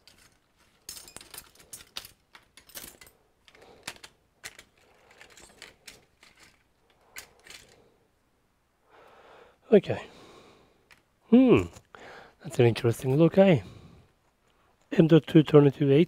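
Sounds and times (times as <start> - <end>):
small tools clicking and scraping: 0.0 - 8.0.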